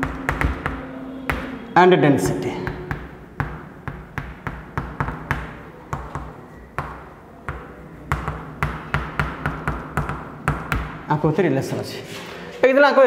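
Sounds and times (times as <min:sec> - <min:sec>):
taps and clicks of writing on board: 0:00.0 - 0:01.6, 0:02.7 - 0:11.0.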